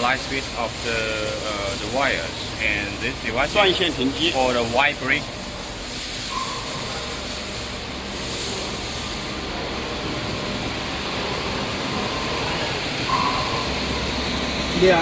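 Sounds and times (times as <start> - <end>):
cable twisting machine hiss and hum: 0.0 - 15.0
faint short beeps: 13.1 - 13.8.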